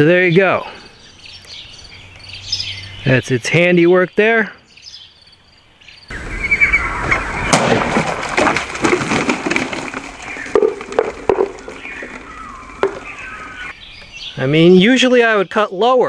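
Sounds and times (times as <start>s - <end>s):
sharp crack: 6.1s - 13.5s
bottle tops and water clattering: 7.8s - 13.1s.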